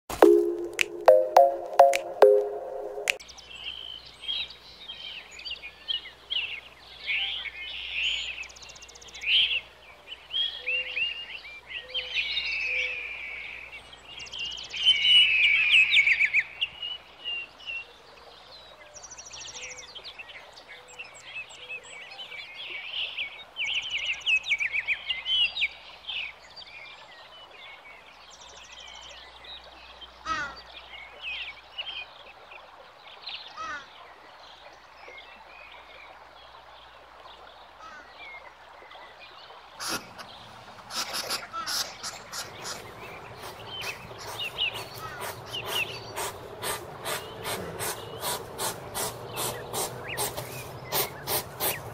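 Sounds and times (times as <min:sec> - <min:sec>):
songbirds singing and chirping: 0:00.2 - 0:51.9.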